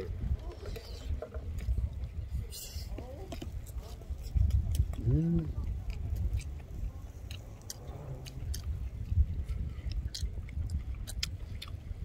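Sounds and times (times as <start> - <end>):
close-up chewing: 0.4 - 12.0
low rumble: 4.1 - 12.0.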